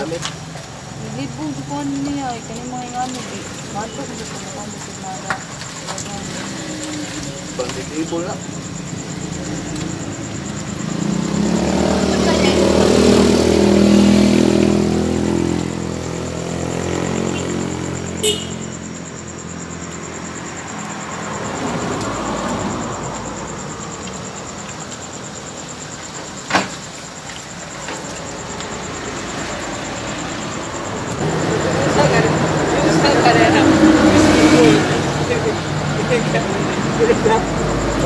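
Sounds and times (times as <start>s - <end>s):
street traffic noise: 0.0s - 38.0s
vehicle engine passing by: 5.8s - 24.6s, 28.0s - 38.0s.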